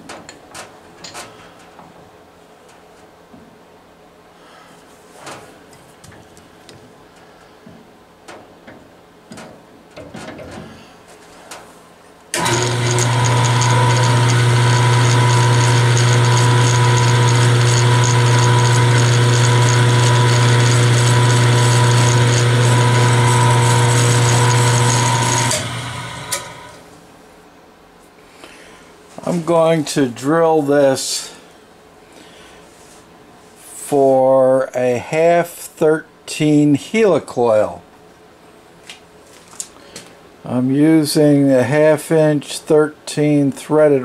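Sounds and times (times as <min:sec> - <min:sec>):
drill press running: 0:12.3 - 0:26.9.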